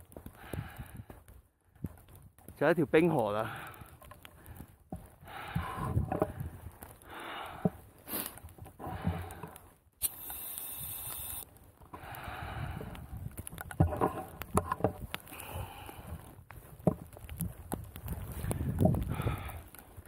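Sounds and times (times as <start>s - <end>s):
heavy breathing: 0.2s - 1.8s, 3.4s - 9.8s, 11.9s - 14.0s, 15.2s - 16.7s, 18.3s - 20.0s
oxygen canister hissing: 10.0s - 11.4s.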